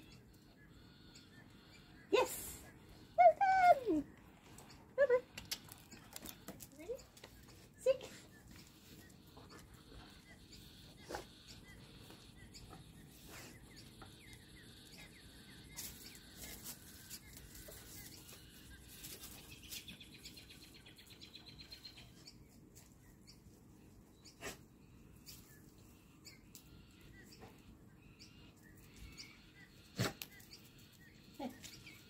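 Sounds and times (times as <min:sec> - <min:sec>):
faint bird chirps: 0:00.0 - 0:32.0.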